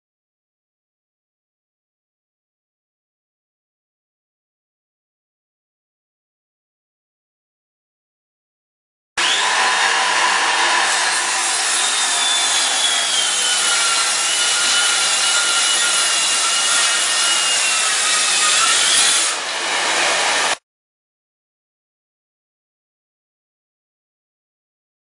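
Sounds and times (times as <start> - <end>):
circular saw cutting boards: 9.2 - 20.6.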